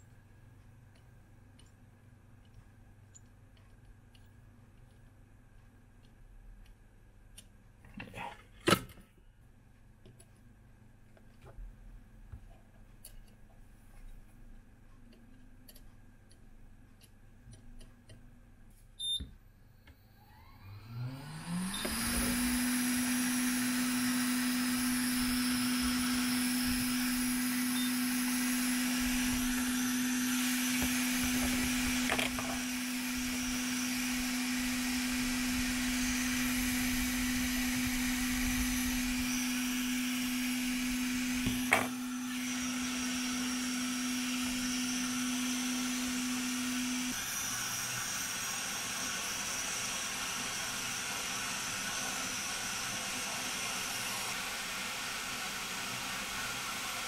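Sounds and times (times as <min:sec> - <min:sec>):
heat gun blower motor hum: 0:20.3 - 0:57.0.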